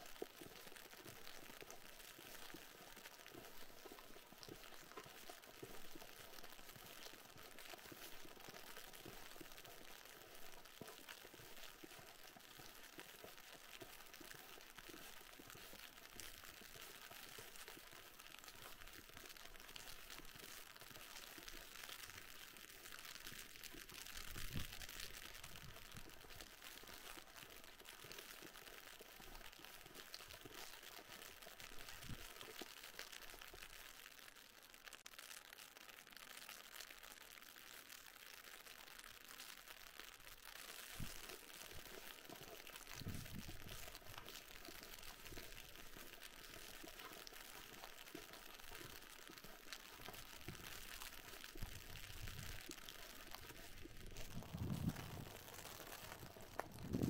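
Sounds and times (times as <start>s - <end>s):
faint steady hiss: 0.0s - 57.0s.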